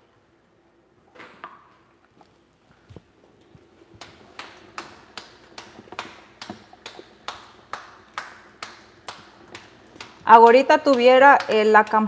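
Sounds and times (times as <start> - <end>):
hands patting dough: 2.8 - 12.0.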